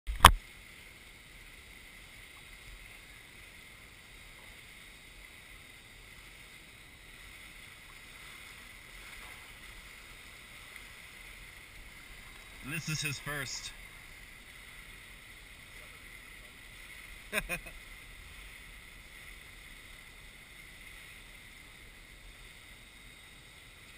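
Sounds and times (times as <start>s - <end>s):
faint pool water hiss: 0.2s - 23.9s.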